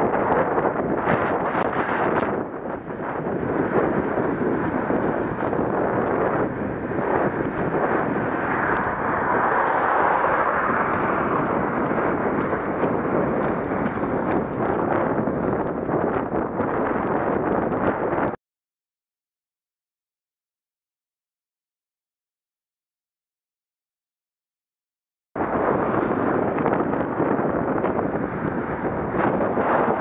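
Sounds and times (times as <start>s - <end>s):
road noise: 0.0s - 18.4s, 25.4s - 30.0s
wind rush on microphone: 0.0s - 18.4s, 25.4s - 30.0s.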